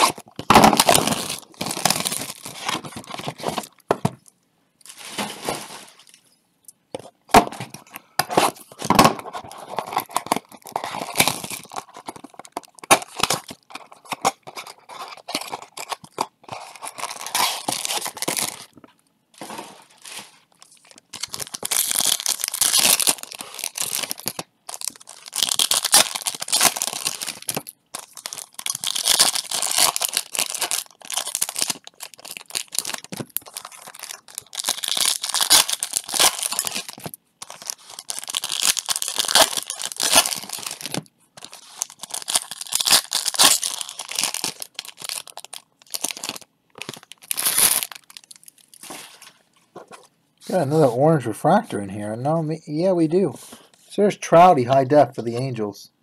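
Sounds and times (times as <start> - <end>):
foil wrappers tearing and crinkling: 0.0 - 3.8, 8.4 - 18.8, 19.4 - 49.2.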